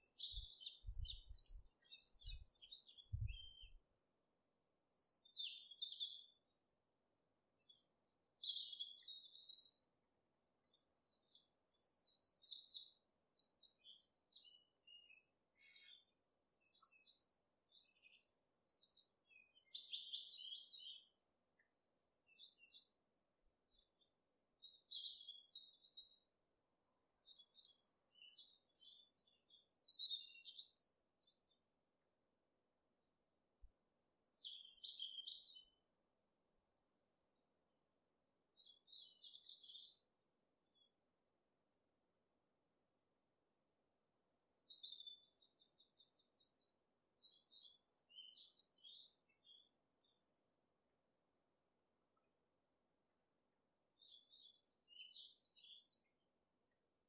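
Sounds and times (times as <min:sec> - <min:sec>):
bird chirping: 0:00.0 - 0:03.8, 0:04.4 - 0:06.4, 0:07.6 - 0:09.8, 0:10.6 - 0:23.0, 0:23.7 - 0:26.2, 0:27.0 - 0:31.4, 0:33.9 - 0:35.8, 0:38.6 - 0:40.1, 0:44.2 - 0:50.8, 0:54.0 - 0:56.7.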